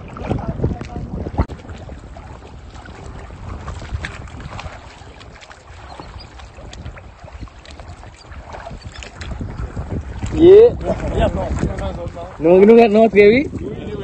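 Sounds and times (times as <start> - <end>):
water sloshing and splashing: 0.0 - 14.0
wind rumble on microphone: 0.0 - 14.0.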